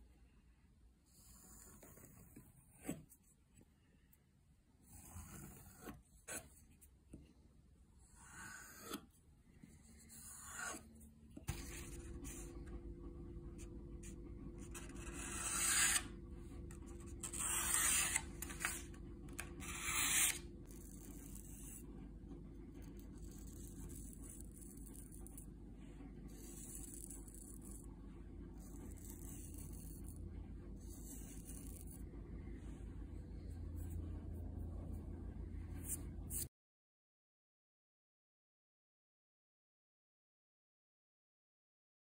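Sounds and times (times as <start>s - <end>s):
steady low hum: 3.7s - 36.5s
knife slicing through paper: 17.2s - 18.9s.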